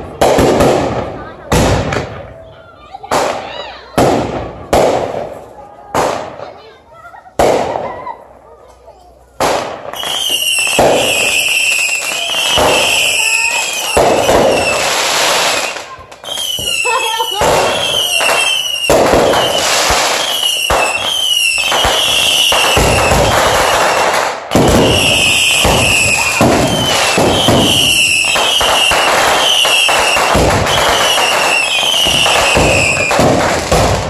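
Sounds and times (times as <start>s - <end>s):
fireworks bangs and crackling: 0.0s - 34.0s
falling firework whistles: 9.9s - 34.0s.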